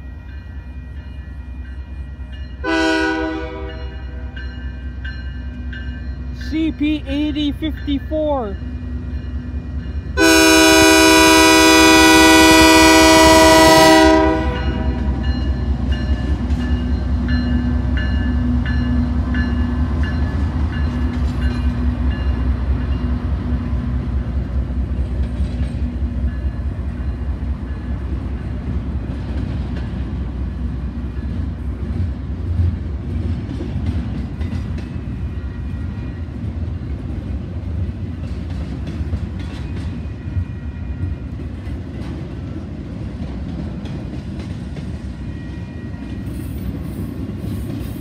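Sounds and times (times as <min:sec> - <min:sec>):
train rumbling past: 0:00.0 - 0:48.0
locomotive horn blast: 0:02.6 - 0:04.4, 0:10.2 - 0:15.2
wheels clacking over rail joints: 0:31.1 - 0:35.3, 0:36.0 - 0:40.4.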